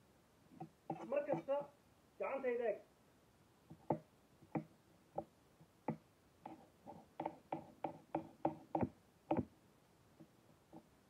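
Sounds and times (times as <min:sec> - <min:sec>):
knife chopping on cutting board: 0:07.2 - 0:09.5.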